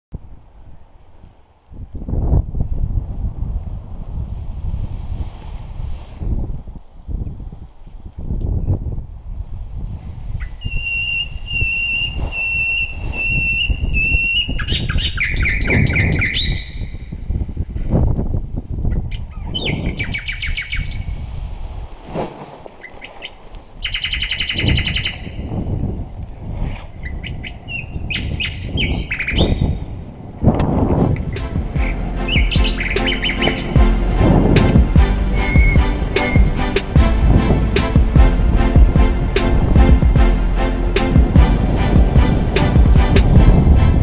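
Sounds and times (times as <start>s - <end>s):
wind buffeting microphone: 0.1s - 44.0s
high beeps: 35.4s - 36.5s.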